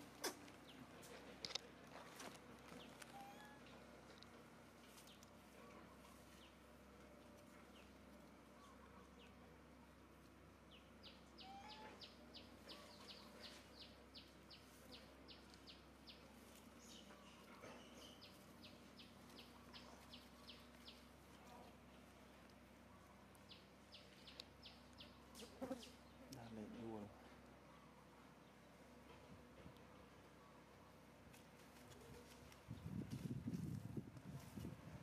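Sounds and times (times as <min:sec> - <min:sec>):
faint high bird chirps: 0:02.9 - 0:03.8, 0:11.0 - 0:14.3.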